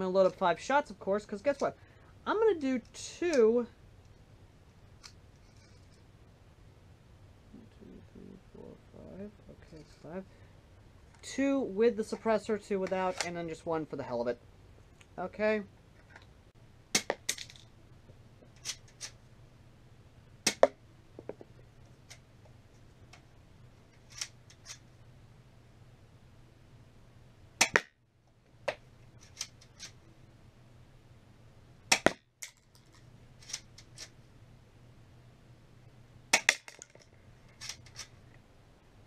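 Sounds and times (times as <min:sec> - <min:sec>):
airsoft pistol shots snapping: 0:16.9 - 0:17.2, 0:20.5 - 0:20.8, 0:27.6 - 0:27.9, 0:31.9 - 0:32.2, 0:36.3 - 0:36.7.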